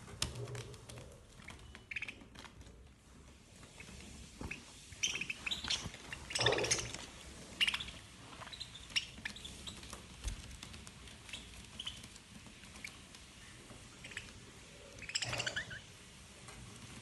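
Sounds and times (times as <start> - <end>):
budgerigars chirping and squawking: 1.9 - 2.2, 3.8 - 9.9, 13.9 - 14.4, 15.0 - 15.9.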